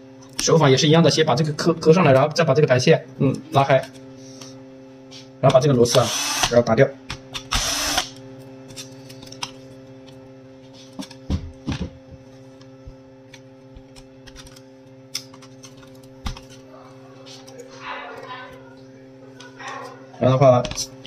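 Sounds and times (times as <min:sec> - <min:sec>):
steady low hum: 0:00.0 - 0:21.0
electric screwdriver running: 0:05.9 - 0:06.6, 0:07.3 - 0:08.2.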